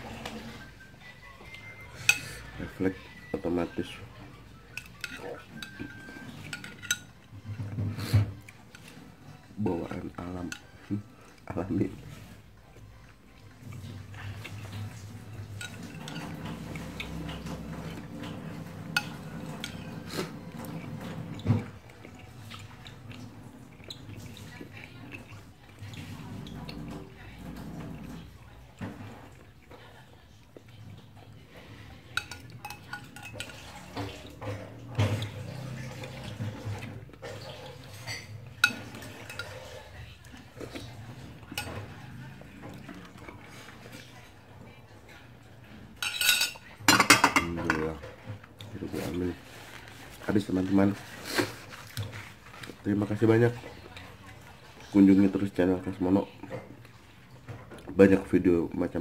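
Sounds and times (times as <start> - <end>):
metal spoon clinking on glass: 46.0 - 47.5.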